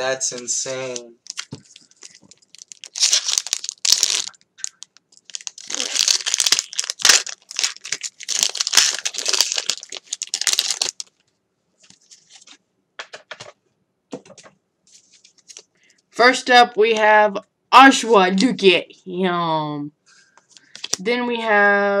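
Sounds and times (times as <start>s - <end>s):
foil wrapper tearing and crinkling: 1.2s - 11.2s, 20.7s - 21.0s.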